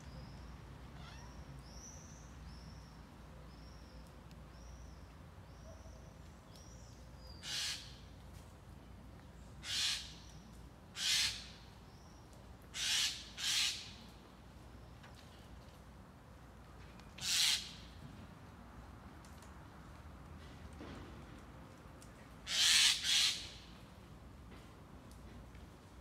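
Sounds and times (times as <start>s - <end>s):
magpie chatter calls: 7.4s - 8.0s, 9.6s - 10.3s, 11.0s - 11.6s, 12.8s - 14.0s, 17.2s - 17.8s, 22.5s - 23.6s.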